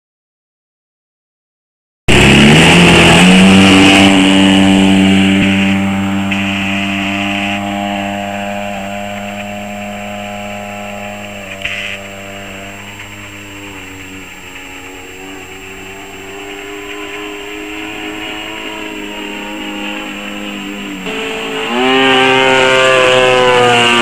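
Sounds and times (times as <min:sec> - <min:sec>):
model plane engine: 0:02.1 - 0:24.0.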